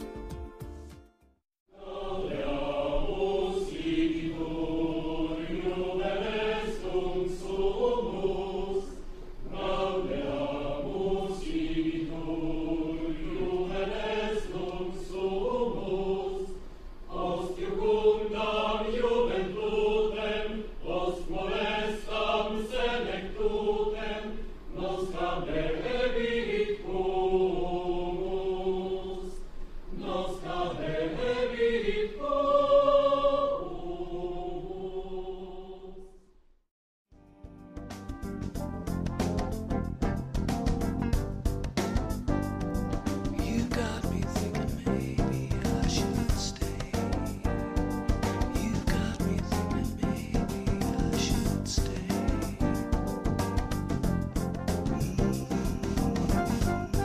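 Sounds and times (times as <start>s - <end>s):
choir singing slow song: 1.7s - 36.4s, 43.3s - 53.4s, 54.8s - 57.0s.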